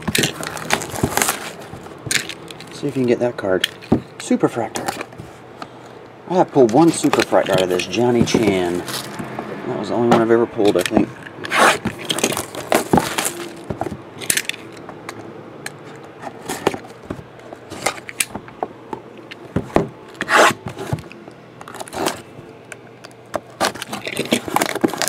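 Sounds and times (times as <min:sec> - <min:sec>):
cardboard boxes scraping and knocking: 0:00.0 - 0:02.2, 0:06.6 - 0:09.5, 0:10.8 - 0:14.0, 0:19.5 - 0:21.1, 0:21.7 - 0:22.4
plastic wrap crackling: 0:00.0 - 0:03.0, 0:06.7 - 0:09.3, 0:11.5 - 0:13.9, 0:23.0 - 0:25.0.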